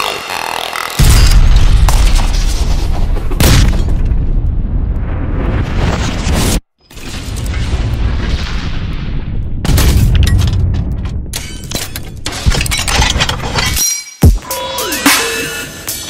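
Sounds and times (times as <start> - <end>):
crackling clattering impacts: 1.1 - 13.6.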